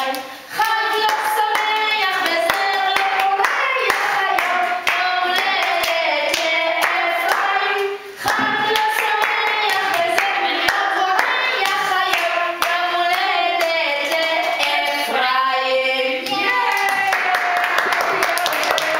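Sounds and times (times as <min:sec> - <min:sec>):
women and children singing: 0:00.0 - 0:18.9
hands clapping: 0:16.2 - 0:18.9.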